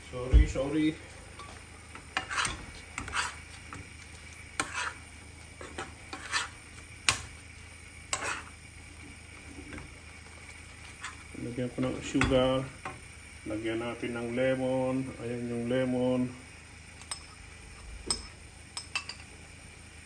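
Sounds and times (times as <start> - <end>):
faint sizzle of sauce: 0.0 - 20.0
spoon scraping and clinking in pan: 2.2 - 3.4, 4.6 - 5.0, 5.6 - 7.3, 8.1 - 8.5, 17.0 - 17.4.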